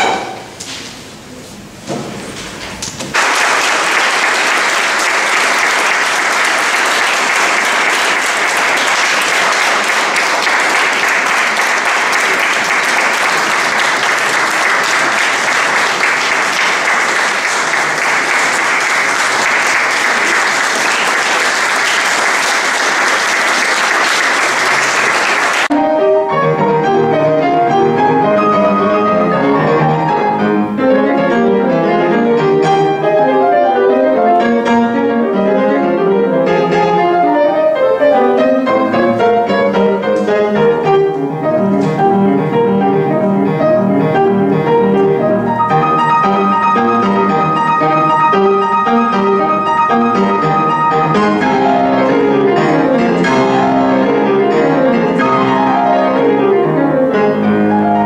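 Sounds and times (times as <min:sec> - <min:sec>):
grand piano playing: 0:00.0 - 0:01.8, 0:03.1 - 0:58.0
audience applauding: 0:03.1 - 0:25.7.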